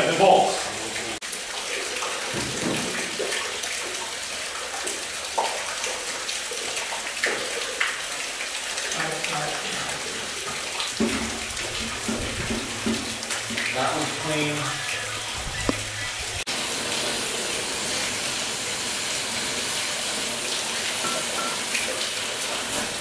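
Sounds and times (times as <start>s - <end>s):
cutting torch hissing: 13.8s - 19.5s.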